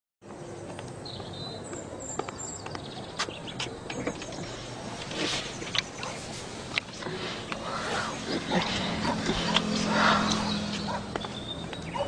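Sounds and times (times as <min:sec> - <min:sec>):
high bird chirps: 0:07.8 - 0:12.0.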